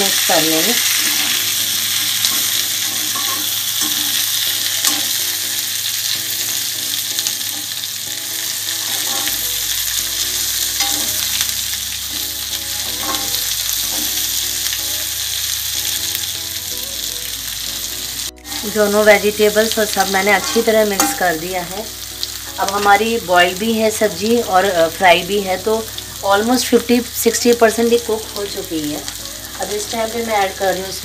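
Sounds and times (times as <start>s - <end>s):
vegetables sizzling in oil: 0.0s - 31.0s
spatula scraping pan: 0.8s - 5.4s, 8.7s - 11.5s, 12.2s - 14.6s, 18.4s - 21.4s.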